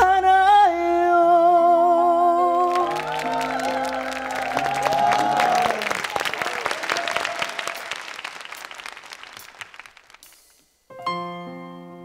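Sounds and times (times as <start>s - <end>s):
applause: 2.5s - 10.7s
piano notes and chords: 10.9s - 12.0s.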